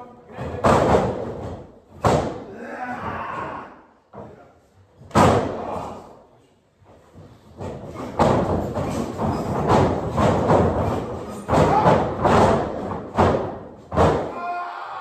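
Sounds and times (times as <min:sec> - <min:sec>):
bodies slamming onto wrestling ring: 0:05.0 - 0:05.6, 0:08.0 - 0:14.4.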